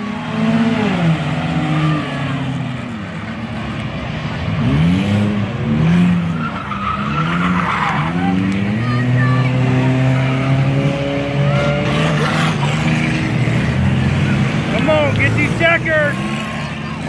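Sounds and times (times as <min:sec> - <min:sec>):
race car engines passing: 0:00.0 - 0:17.0
tires skidding and squealing: 0:00.0 - 0:17.0.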